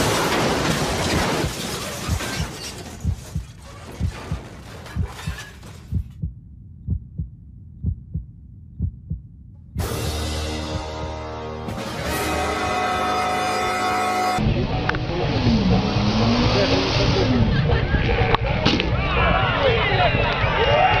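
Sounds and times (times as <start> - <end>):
heartbeat thumps: 3.0 - 9.9, 10.6 - 11.2
music: 9.8 - 15.2.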